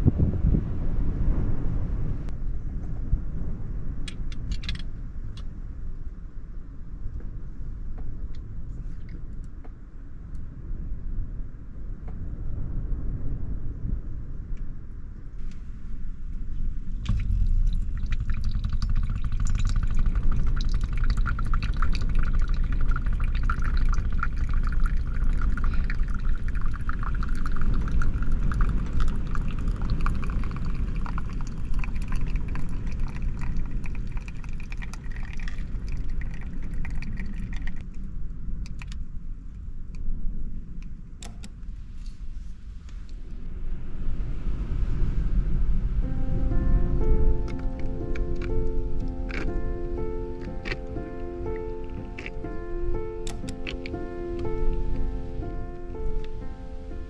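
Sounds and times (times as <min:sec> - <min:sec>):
steady low rumble: 0:00.0 - 0:57.0
espresso trickling into glass cup: 0:17.1 - 0:37.8
clicks: 0:53.2 - 0:54.0.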